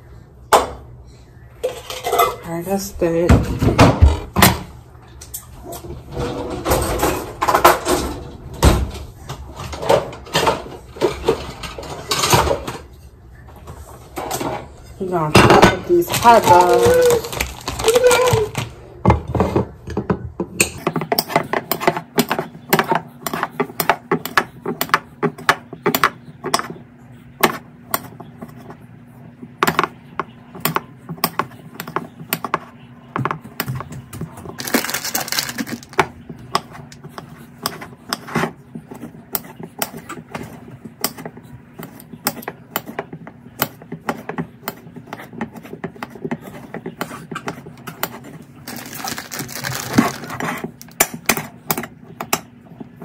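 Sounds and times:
knife chopping on a plate: 0:20.6 - 0:26.8.

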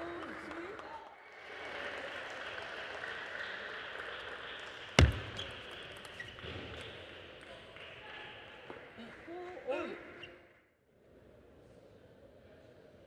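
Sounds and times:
loud thump: 0:05.0 - 0:05.4.

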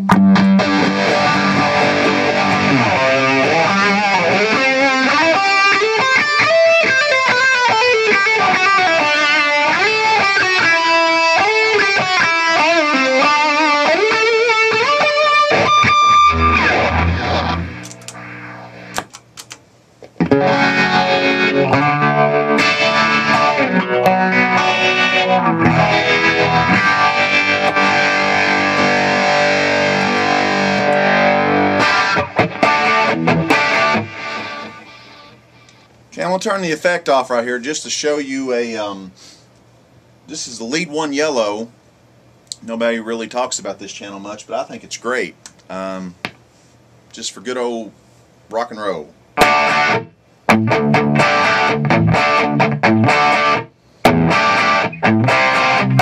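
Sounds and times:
overdriven electric guitar lead: 0:00.0 - 0:19.2, 0:20.0 - 0:35.9, 0:49.4 - 0:56.0.

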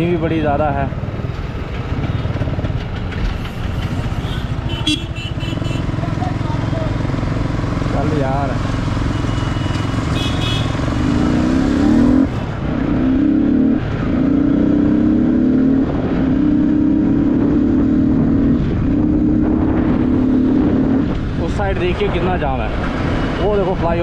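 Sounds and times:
motorcycle engine accelerating: 0:05.2 - 0:21.5.

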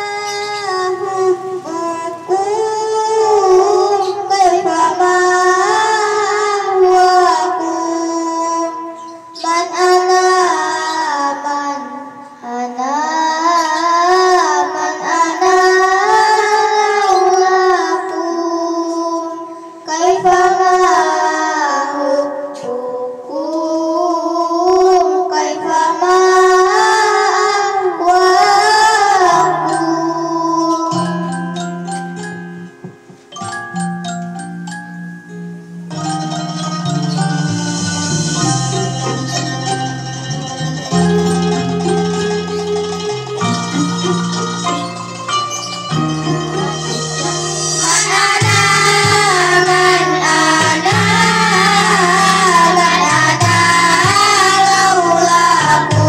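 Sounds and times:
girls singing devotional song: 0:00.0 - 0:31.6, 0:40.9 - 0:44.6, 0:46.3 - 0:56.0.

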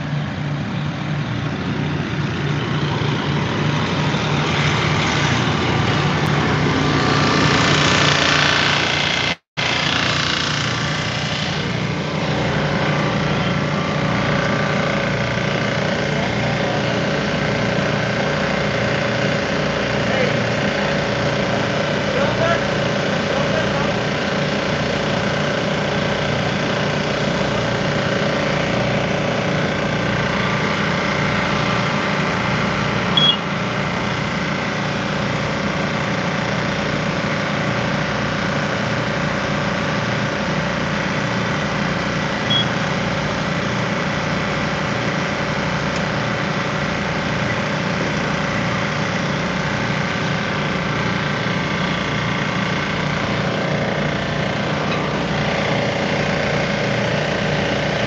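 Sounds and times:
fire truck engine running: 0:00.0 - 0:58.0
brief high chirps: 0:33.2 - 0:33.4.

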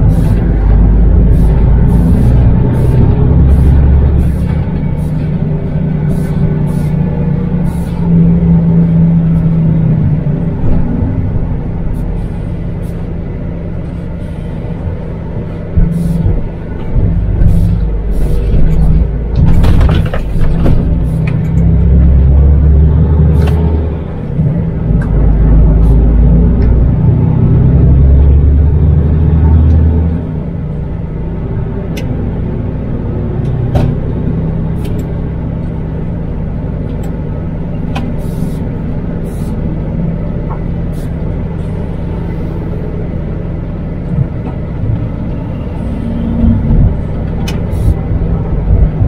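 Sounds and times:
road noise: 0:00.0 - 0:49.0
truck diesel engine droning: 0:00.0 - 0:49.0.

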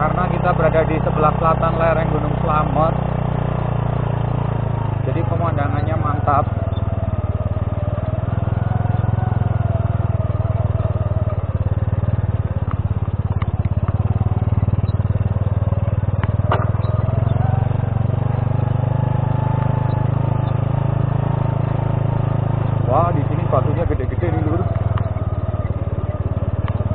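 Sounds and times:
motorcycle engine running: 0:00.0 - 0:26.9
short sharp knocks: 0:16.5 - 0:16.8.

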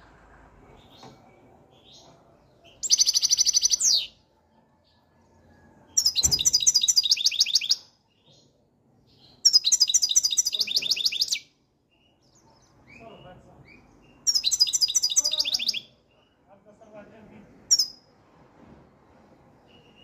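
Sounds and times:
bird twittering song: 0:00.8 - 0:04.2, 0:05.9 - 0:16.4, 0:17.7 - 0:18.0.

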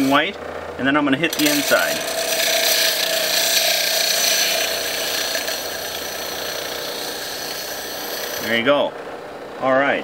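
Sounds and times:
sanding pad grinding glass: 0:00.0 - 0:00.3, 0:01.3 - 0:08.7
electric motor hum: 0:00.0 - 0:09.5.

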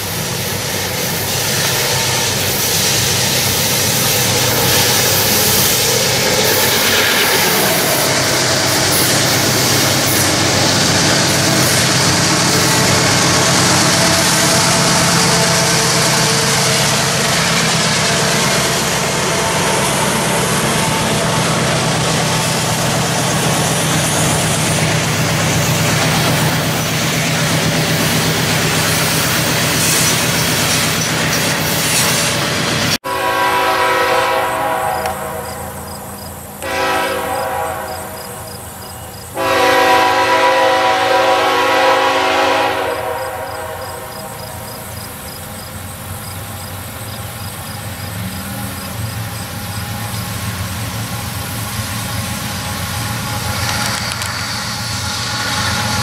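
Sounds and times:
train running by: 0:00.0 - 0:56.0
locomotive air horn blasts: 0:04.1 - 0:08.3, 0:11.4 - 0:22.4, 0:33.0 - 0:35.9, 0:36.6 - 0:38.7, 0:39.4 - 0:44.4.

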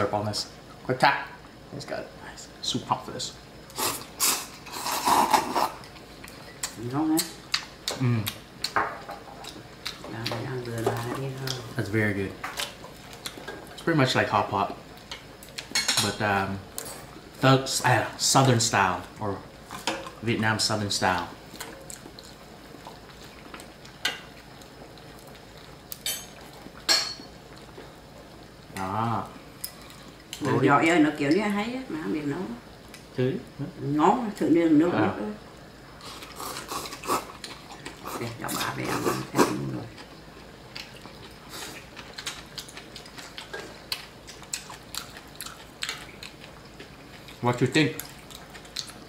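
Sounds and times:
low steady background hiss: 0:00.0 - 0:49.0
people chewing with chopsticks: 0:03.7 - 0:15.8, 0:16.6 - 0:30.6, 0:35.9 - 0:49.0.

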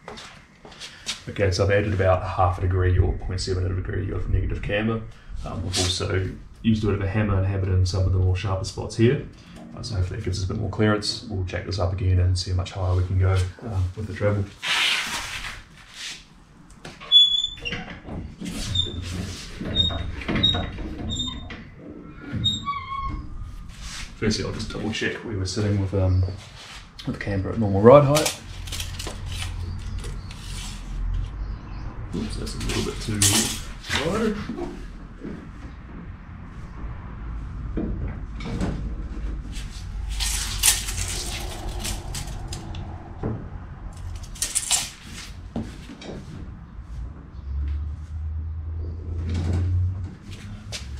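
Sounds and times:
jack squeaking: 0:17.0 - 0:23.4
steady low hum: 0:23.2 - 0:47.2
tools clattering: 0:32.7 - 0:34.1, 0:44.0 - 0:45.3
rustling: 0:39.1 - 0:46.1.

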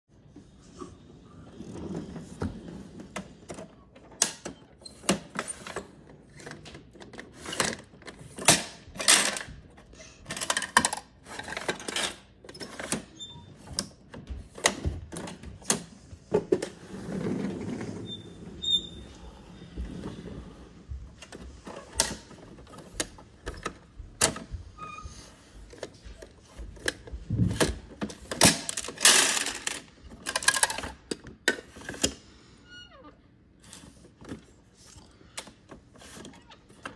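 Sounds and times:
plastic toy clicks and rattles: 0:10.2 - 0:13.0, 0:27.6 - 0:32.2.

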